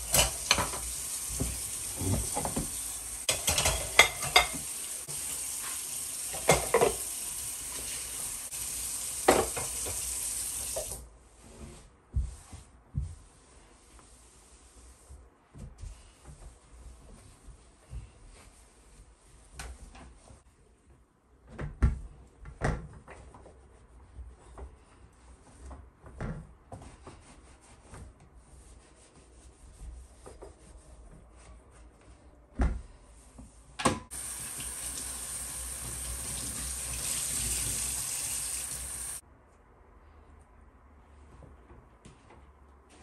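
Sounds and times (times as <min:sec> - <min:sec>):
kitchen tap running: 0:00.0 - 0:11.0, 0:34.1 - 0:39.2.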